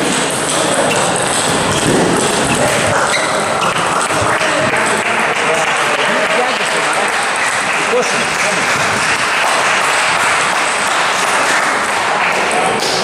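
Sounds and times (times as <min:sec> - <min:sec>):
din of large hall: 0:00.0 - 0:13.0
people talking: 0:00.0 - 0:13.0.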